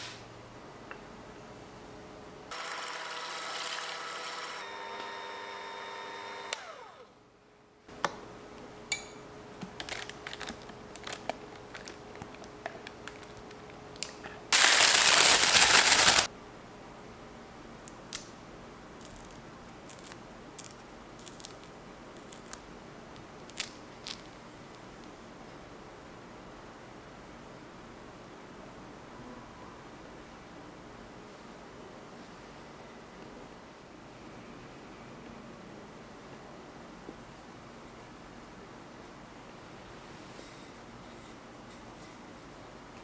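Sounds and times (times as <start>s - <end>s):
electric hand mixer whipping cream: 2.5s - 7.0s.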